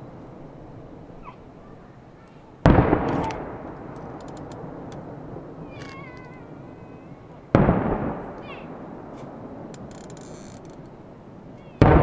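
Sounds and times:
firework crackles: 0:00.0 - 0:12.0
firework boom: 0:02.6 - 0:10.0.

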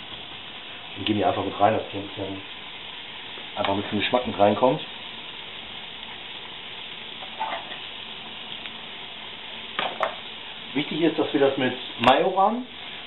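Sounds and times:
food sizzling in frying pan: 0:00.0 - 0:13.0
utensil scraping pan: 0:07.2 - 0:07.8.

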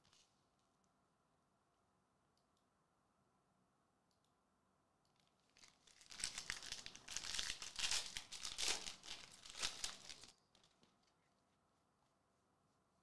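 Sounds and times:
foil wrapper tearing and crinkling: 0:05.5 - 0:10.7.

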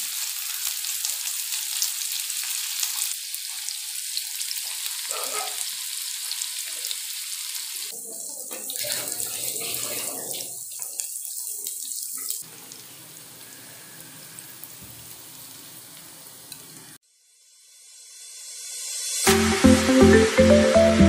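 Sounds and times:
onions sizzling in a frying pan: 0:00.0 - 0:18.7
music: 0:18.0 - 0:21.0.

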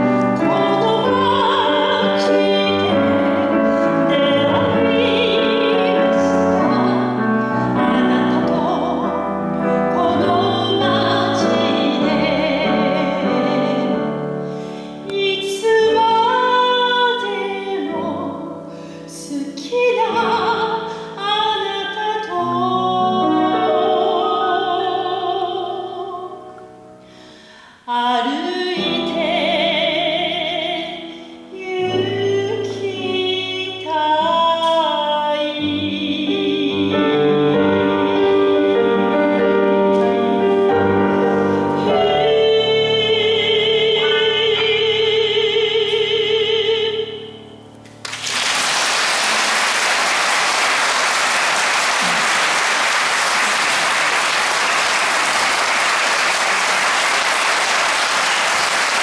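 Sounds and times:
piano accompaniment: 0:00.0 - 0:59.0
woman singing operatically: 0:00.3 - 0:14.1, 0:15.0 - 0:26.5, 0:27.9 - 0:39.2, 0:41.8 - 0:47.4
audience applause: 0:48.0 - 0:59.0.

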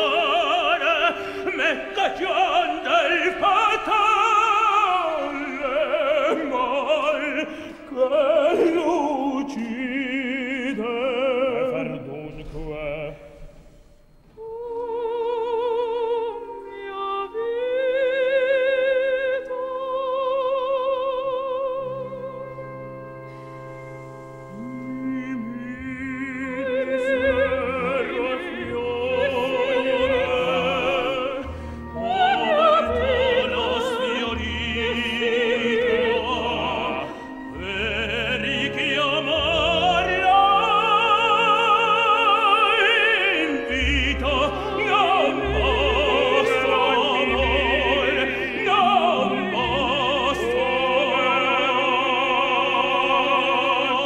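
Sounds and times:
tenor singing: 0:00.0 - 0:23.4, 0:24.4 - 0:54.0
soprano singing: 0:00.0 - 0:54.0
orchestra playing: 0:21.4 - 0:54.0.

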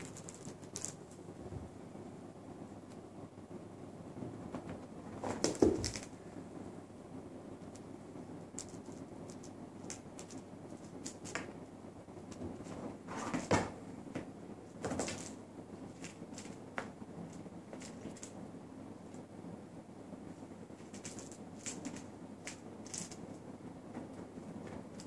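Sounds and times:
kitten paws tapping and scrabbling: 0:00.0 - 0:01.7, 0:04.4 - 0:06.2, 0:08.5 - 0:11.6, 0:12.3 - 0:18.4, 0:20.7 - 0:25.0
kitten thumping on sofa: 0:04.5 - 0:06.0.

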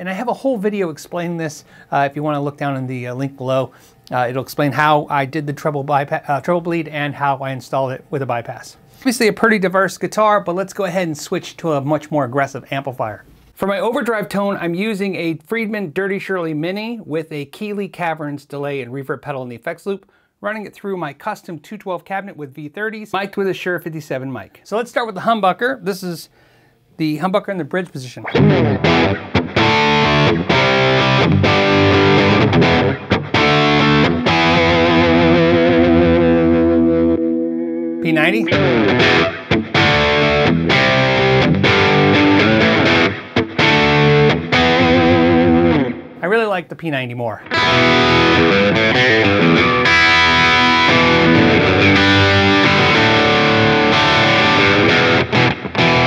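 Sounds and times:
overdriven electric guitar chords: 0:28.2 - 0:46.2, 0:47.5 - 0:56.0.

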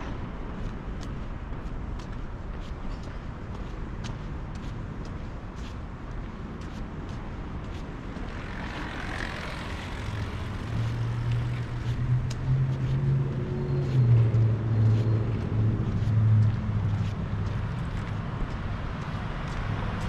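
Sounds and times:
street noise: 0:00.0 - 0:20.0
vehicle engine humming: 0:05.9 - 0:20.0.

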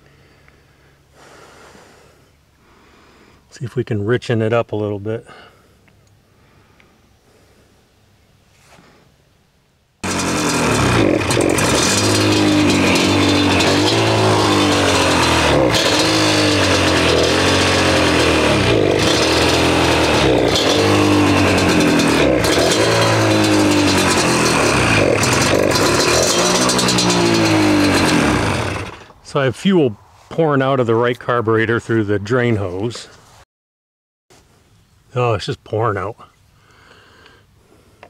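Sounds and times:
two-stroke engine revving: 0:10.0 - 0:29.2.

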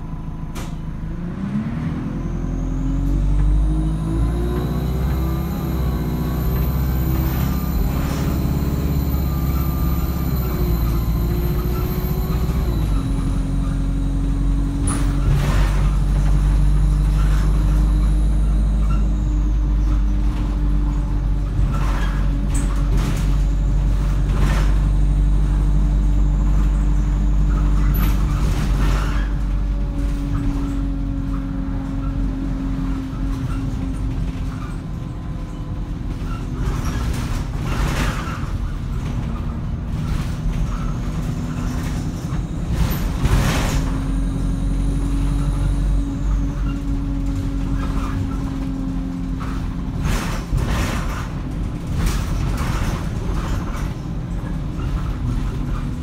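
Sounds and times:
bus engine pulling hard: 0:00.0 - 0:56.0
bus body knocks and rattles: 0:12.3 - 0:44.5, 0:45.2 - 0:56.0.

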